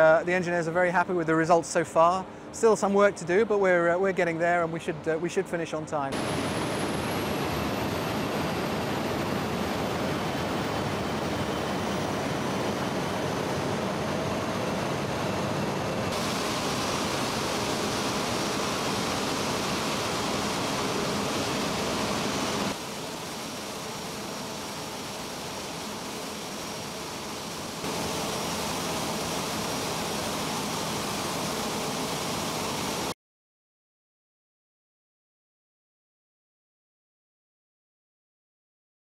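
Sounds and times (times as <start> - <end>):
jet engine roaring: 6.1 - 33.1.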